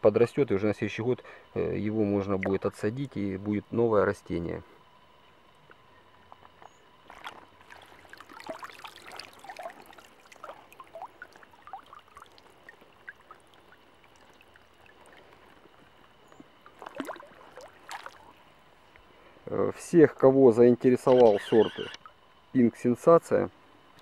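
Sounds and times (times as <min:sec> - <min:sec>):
water dripping into pond: 0:02.2 - 0:03.2, 0:06.4 - 0:19.1
splashes in water: 0:07.0 - 0:15.8, 0:16.6 - 0:18.4.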